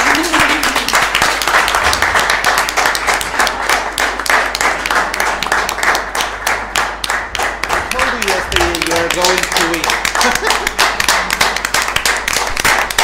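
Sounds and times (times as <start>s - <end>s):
audience applause: 0.0s - 13.0s.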